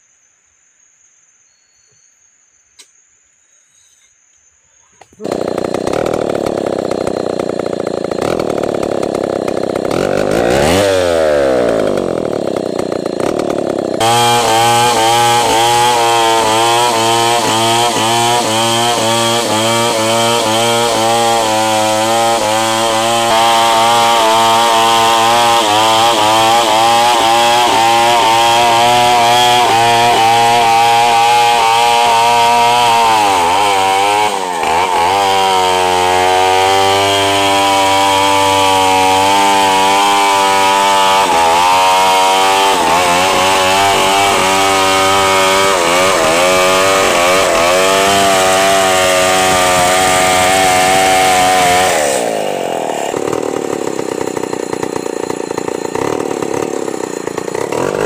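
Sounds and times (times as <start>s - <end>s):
chainsaw cutting at full throttle: 5.2s - 58.0s.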